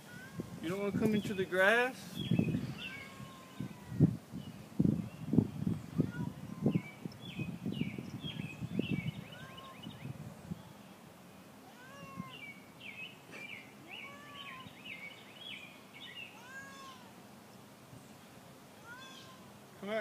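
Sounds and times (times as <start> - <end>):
birds chirping: 0.0 - 20.0
cat meowing: 2.8 - 4.1, 5.9 - 6.8, 9.3 - 9.9, 11.6 - 12.5, 13.8 - 14.7, 16.3 - 17.2, 18.8 - 19.5.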